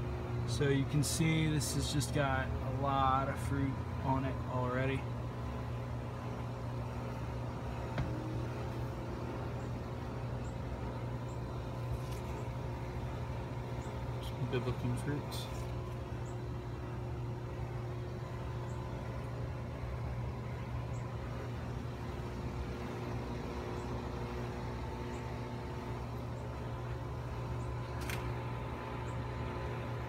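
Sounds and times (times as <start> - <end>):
low mechanical hum: 0.0 - 30.0
sharp click: 28.0 - 28.3.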